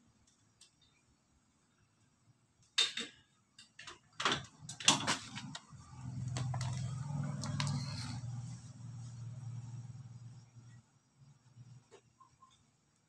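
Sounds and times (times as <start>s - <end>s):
steady low hum: 4.7s - 13.0s.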